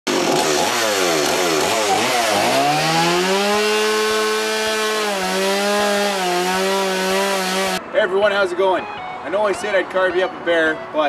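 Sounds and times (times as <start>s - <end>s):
chainsaw revving: 0.1s - 7.8s.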